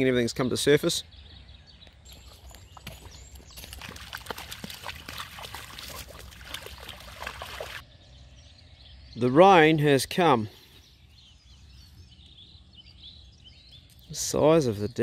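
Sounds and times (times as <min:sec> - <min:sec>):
dogs splashing in water: 0:02.1 - 0:07.8.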